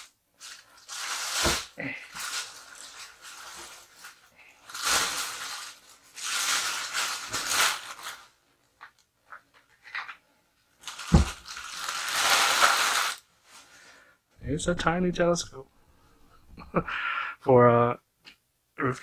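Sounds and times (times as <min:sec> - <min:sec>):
plastic bag crinkling: 0:00.0 - 0:10.2, 0:10.8 - 0:13.6.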